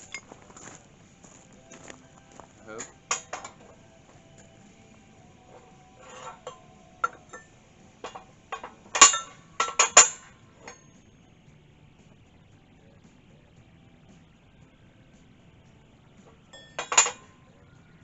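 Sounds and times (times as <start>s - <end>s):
steel plates clanking on metal: 2.7s - 4.6s, 5.5s - 10.8s, 16.3s - 17.4s.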